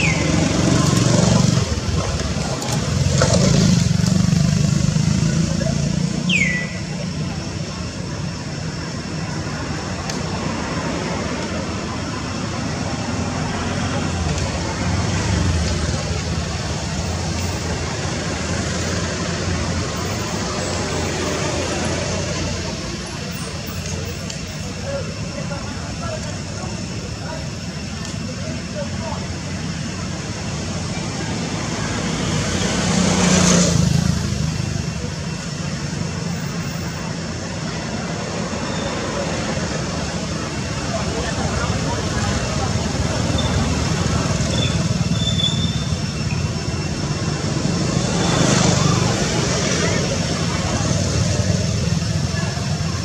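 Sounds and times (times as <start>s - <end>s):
road traffic rumble: 0.0s - 53.0s.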